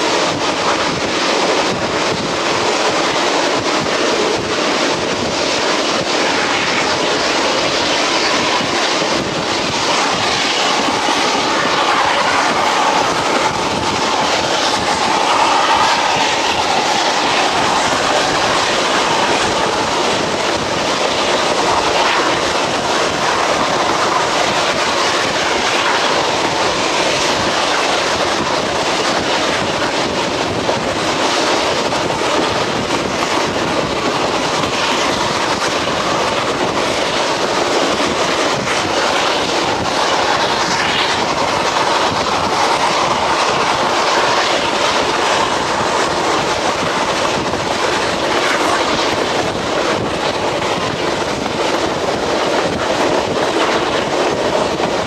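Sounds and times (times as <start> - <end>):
clickety-clack over rail joints: 0.0 - 55.0
train wheels on track: 0.0 - 55.0.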